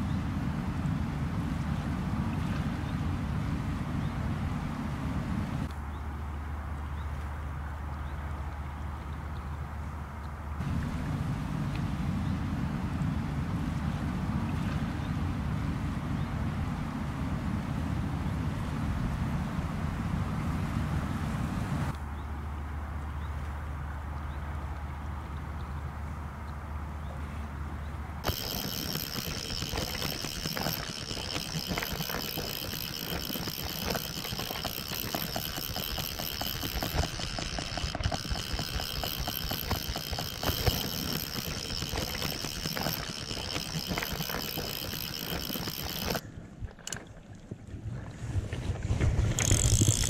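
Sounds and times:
fishing reel ratchet clicking: 28.2 - 46.2, 49.3 - 50.0.

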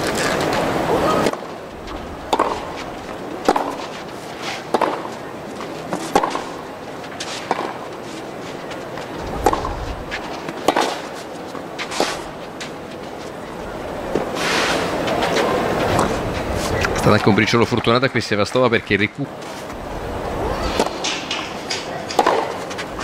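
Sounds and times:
background hiss: 0.0 - 23.0
rackets striking tennis ball: 2.3 - 13.4, 14.1 - 17.4, 20.6 - 23.0.

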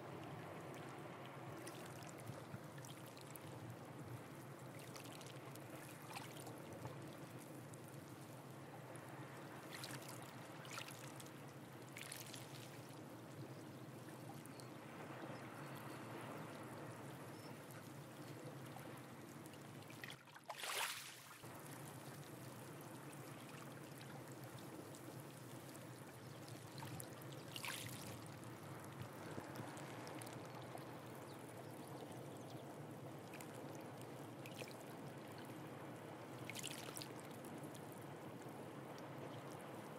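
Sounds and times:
water splashes: 9.6 - 13.0, 18.6 - 30.9, 36.4 - 37.7.

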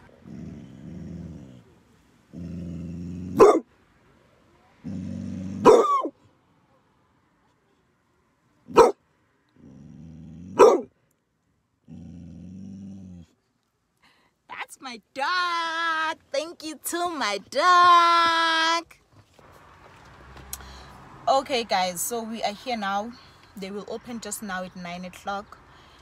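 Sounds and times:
dog growling low: 0.0 - 3.6, 4.8 - 5.8, 9.5 - 10.8, 11.8 - 13.4
dog barking loudly: 3.4 - 3.7, 5.6 - 6.1, 8.7 - 9.0, 10.6 - 10.9.

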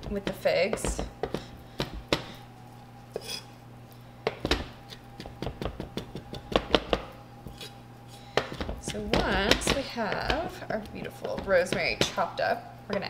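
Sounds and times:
knife chopping on wooden board: 0.0 - 2.4, 4.3 - 7.7, 8.3 - 12.2.

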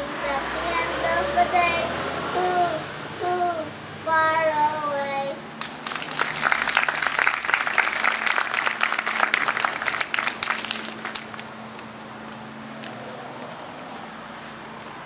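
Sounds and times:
audience clapping: 5.6 - 11.5.

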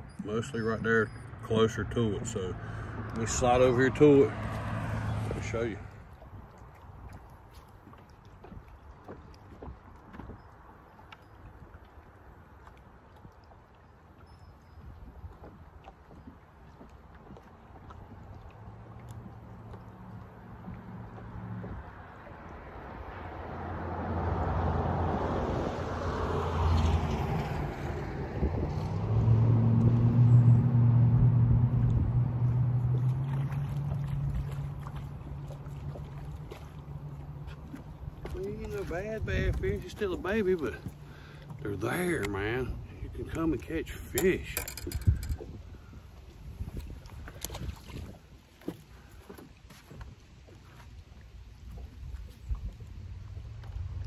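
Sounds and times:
water lapping against boat hull: 0.0 - 54.0
wind rumble on microphone: 20.6 - 35.3, 37.6 - 40.2, 44.1 - 48.8, 49.4 - 54.0.

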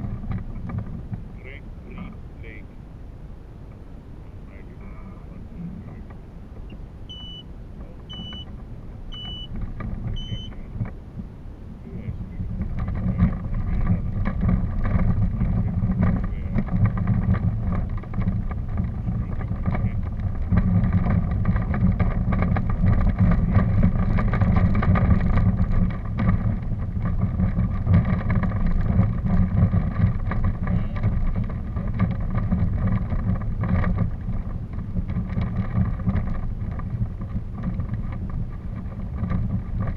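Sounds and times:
vehicle rumbling on woodland track: 0.0 - 39.9
wind on microphone: 0.0 - 39.9
short high beeps: 6.7 - 7.5, 8.1 - 8.5, 9.1 - 9.5, 10.2 - 10.6.

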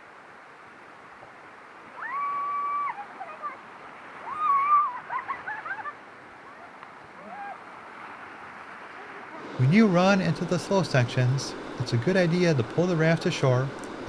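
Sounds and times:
whitewater rapids rushing: 1.7 - 14.0
people shrieking and whooping: 2.0 - 3.5, 4.2 - 7.7.

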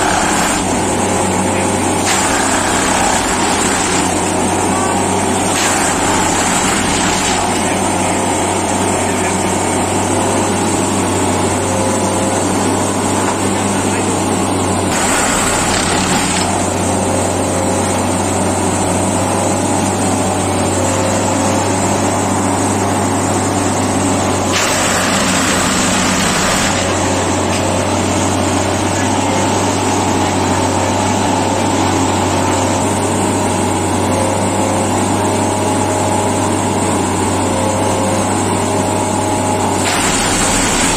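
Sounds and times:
tamping machine engine hum: 0.0 - 40.9
tamping tines rushing noise: 14.9 - 16.6.

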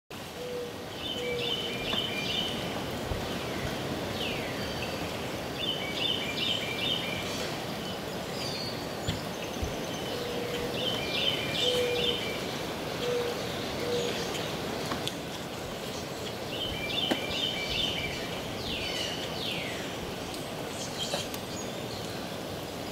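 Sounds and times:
steady background hiss: 0.1 - 22.9.

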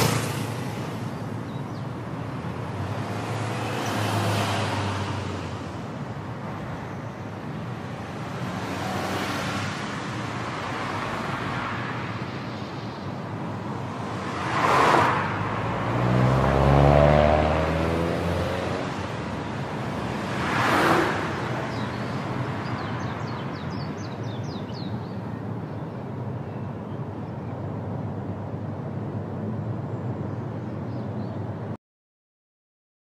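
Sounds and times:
passing vehicle engine: 0.0 - 1.1, 2.4 - 5.9, 7.9 - 12.2, 13.6 - 23.2
vehicles whooshing past: 0.0 - 25.1
tyre and road noise: 0.0 - 31.8.

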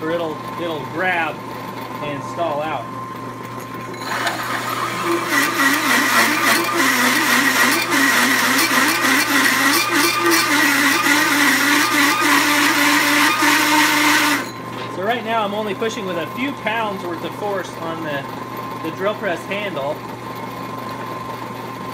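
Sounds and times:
drill press motor running: 0.0 - 19.0
hole saw grinding steel: 3.9 - 14.6.

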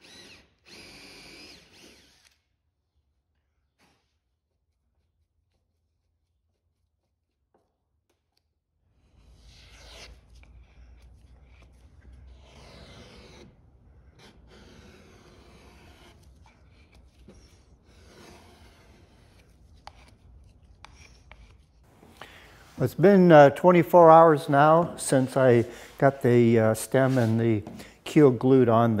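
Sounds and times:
spreader scraping filler: 9.0 - 28.8.

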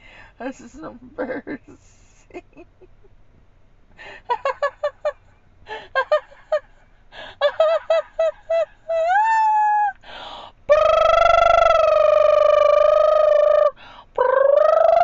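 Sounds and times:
woman laughing hard: 0.7 - 3.1, 4.0 - 9.9.

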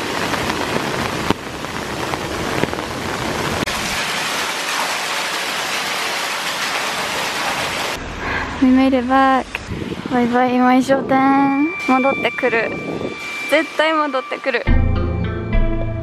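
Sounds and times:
heavy rain on umbrella and pavement: 0.0 - 8.9.

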